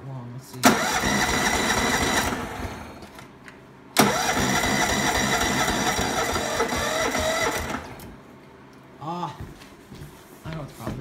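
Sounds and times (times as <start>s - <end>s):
electric starter cranking engine: 0.6s - 3.2s, 4.0s - 8.1s.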